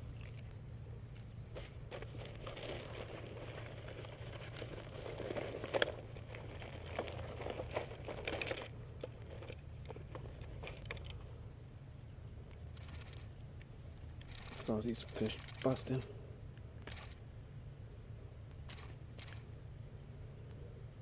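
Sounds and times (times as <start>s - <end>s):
low steady hum: 0.0s - 21.0s
clicks and rustles of handling: 0.1s - 11.3s, 12.5s - 16.1s.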